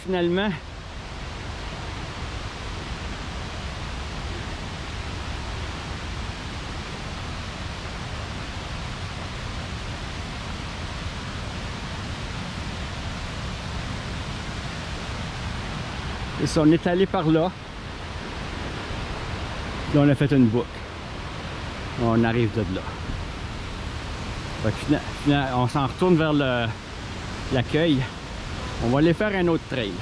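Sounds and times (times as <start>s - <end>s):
water rushing over falls: 0.0s - 30.0s.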